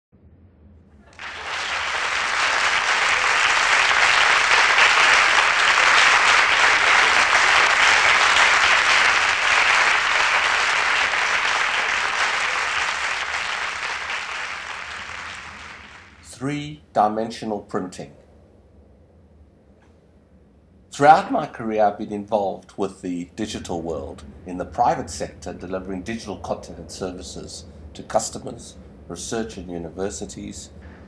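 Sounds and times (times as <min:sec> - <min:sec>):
audience applauding: 0:01.1 - 0:16.3.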